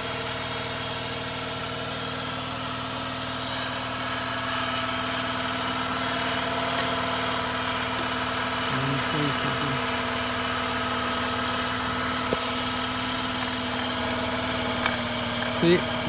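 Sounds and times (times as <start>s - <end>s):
car engine idling: 0.1s - 16.0s.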